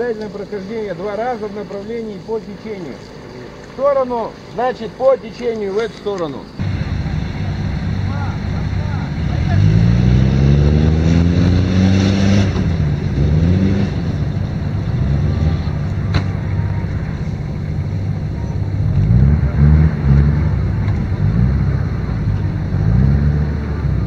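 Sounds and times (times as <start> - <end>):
suv engine revving: 6.6 - 24.0.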